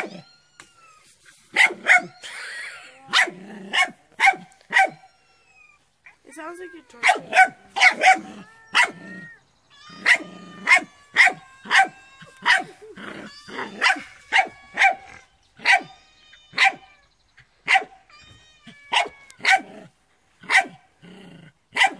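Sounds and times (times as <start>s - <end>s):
puppy barking: 1.6s - 2.2s, 3.1s - 5.1s, 7.0s - 9.1s, 10.0s - 12.8s, 13.6s - 16.0s, 16.6s - 16.8s, 17.7s - 18.0s, 18.9s - 19.8s, 20.4s - 20.8s.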